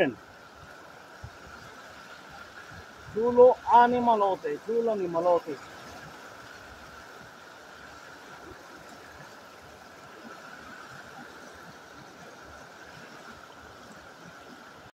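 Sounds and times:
river rushing over rocks: 0.0s - 14.9s.

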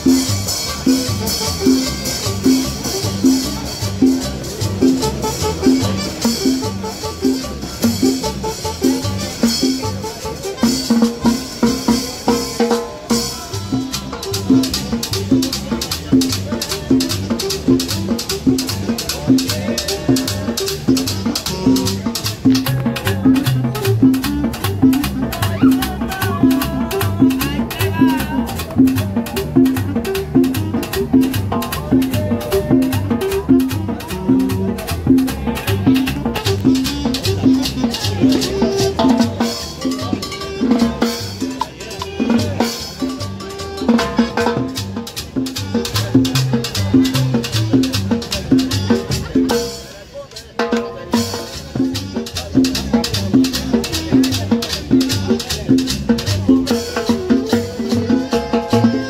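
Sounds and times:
pulsing bass line: 0.0s - 49.7s, 51.6s - 59.0s
street band playing latin music: 0.0s - 59.0s
timbales and percussion: 0.0s - 59.0s.

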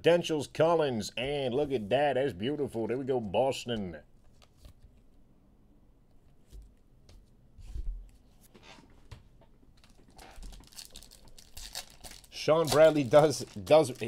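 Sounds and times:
trading cards rustling and clicking: 9.8s - 14.0s.

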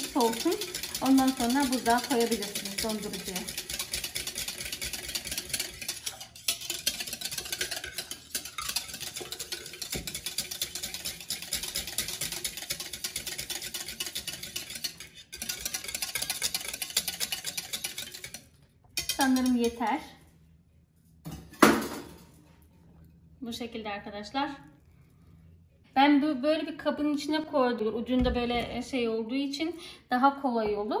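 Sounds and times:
whisk clattering against bowl: 0.0s - 19.9s.

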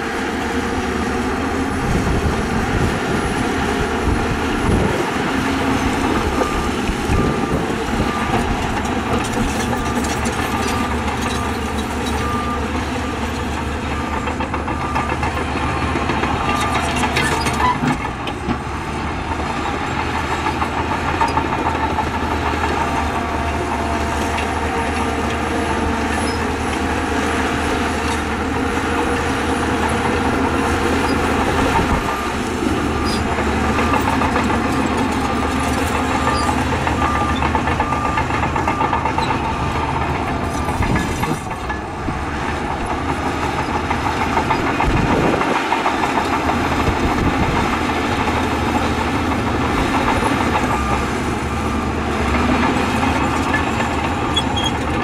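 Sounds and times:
diesel engines running: 0.0s - 55.0s
reversing alarm beeping: 4.0s - 17.7s, 21.9s - 42.0s, 48.5s - 55.0s.

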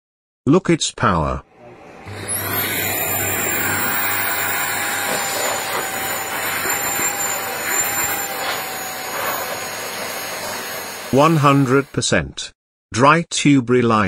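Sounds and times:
faint motor whine: 1.5s - 12.0s
hot-air blower rushing: 1.5s - 12.1s.

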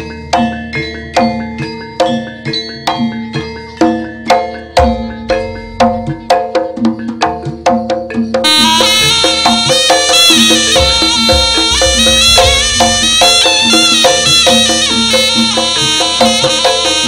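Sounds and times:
struck metal gamelan instruments: 0.0s - 17.0s
loud reedy wind instrument: 8.4s - 17.0s.

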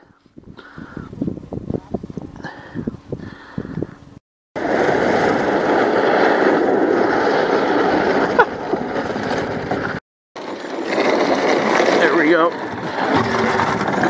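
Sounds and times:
snow vehicle engine and tracks: 4.6s - 14.0s.

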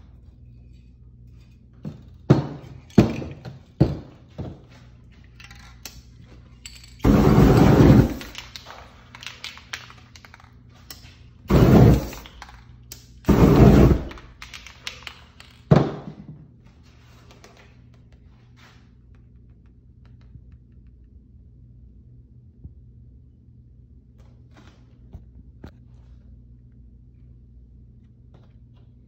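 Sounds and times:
spray paint can hissing: 7.0s - 8.3s, 11.5s - 12.3s, 13.3s - 14.3s.

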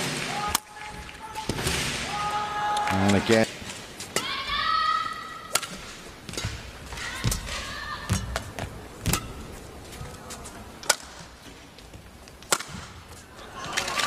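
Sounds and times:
low arena hum: 0.0s - 14.0s
racket striking shuttlecock: 5.5s - 9.5s, 10.8s - 11.3s, 12.5s - 13.0s.

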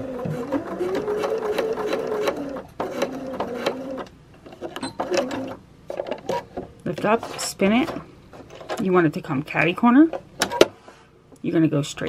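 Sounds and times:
sewing machine stitching: 0.0s - 5.6s.

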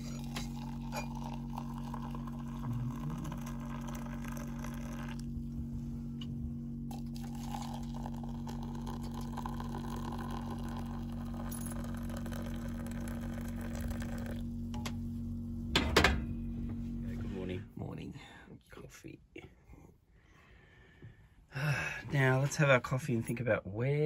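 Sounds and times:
hot water pouring into mugs: 0.0s - 5.3s, 6.9s - 14.4s
steady low hum: 0.0s - 24.0s.

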